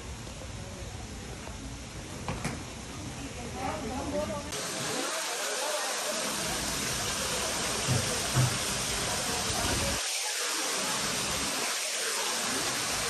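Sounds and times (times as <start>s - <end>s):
fountain water splashing: 4.4s - 13.0s.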